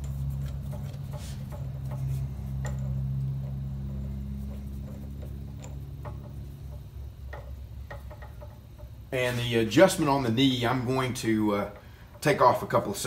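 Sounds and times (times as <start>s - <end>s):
metallic clicks and taps: 0.0s - 9.0s
low machine hum: 0.0s - 13.0s.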